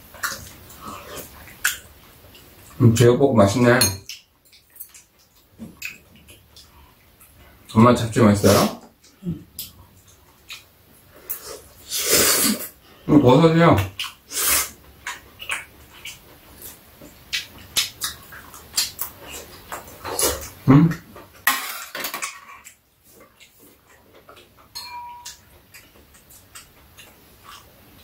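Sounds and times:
mouth sounds of eating: 0.1 - 21.3
utensils clicking on bowls: 24.6 - 26.7.

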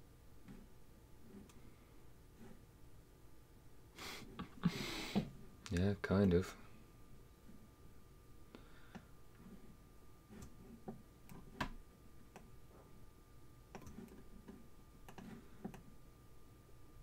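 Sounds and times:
computer mouse clicks: 11.2 - 12.5, 13.7 - 15.9.

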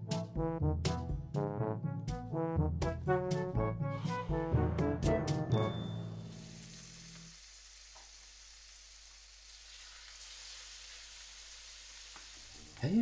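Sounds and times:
steaks sizzling in a frying pan: 6.0 - 12.7.

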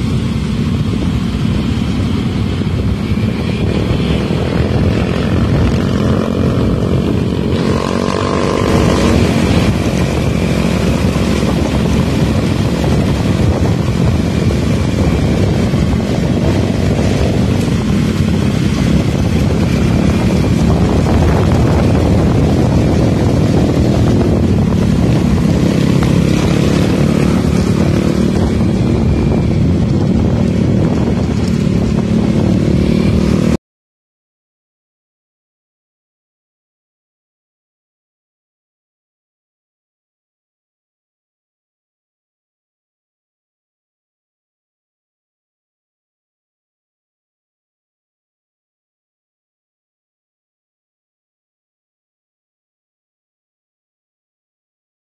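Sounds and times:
motorcycle engine running: 0.0 - 33.6
wind over microphone: 0.0 - 33.6.

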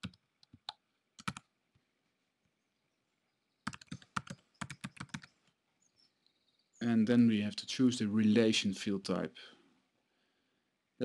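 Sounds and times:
computer keyboard typing: 0.0 - 1.5, 3.6 - 5.3.

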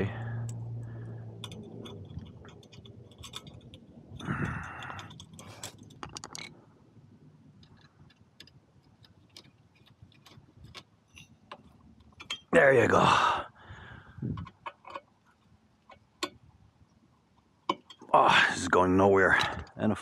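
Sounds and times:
metallic clicks of hose clamp: 0.4 - 6.5, 7.6 - 12.5, 14.3 - 16.4
screwdriver tightening: 1.4 - 6.1, 7.6 - 12.4.

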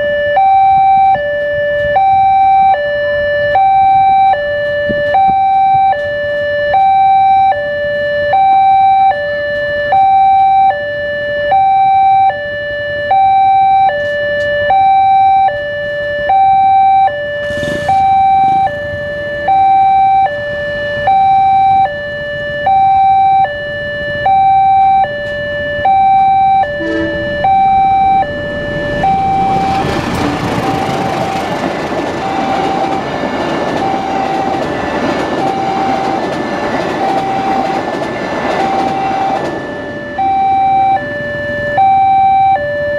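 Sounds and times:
level crossing two-tone alarm: 0.0 - 42.9
train rumbling: 17.4 - 22.4, 25.2 - 41.8.

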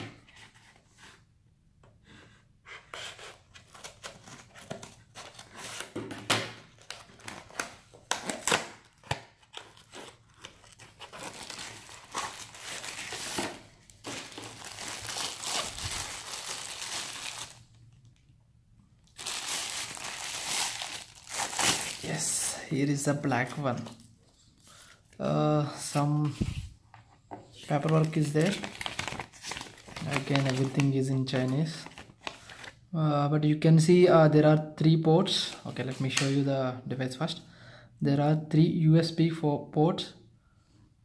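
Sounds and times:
packaging rustling and crinkling: 6.7 - 17.8, 19.1 - 22.6, 27.6 - 32.8.

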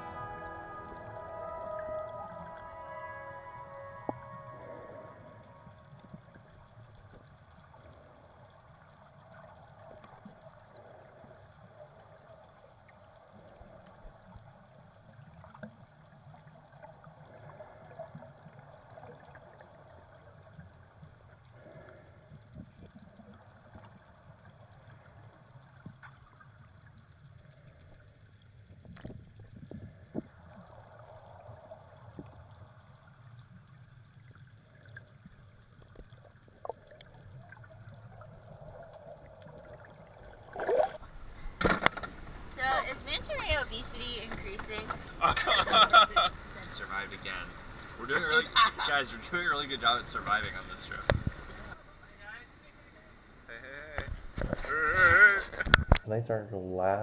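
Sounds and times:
underwater low rumble: 0.0 - 56.1
water sloshing: 34.3 - 52.1.

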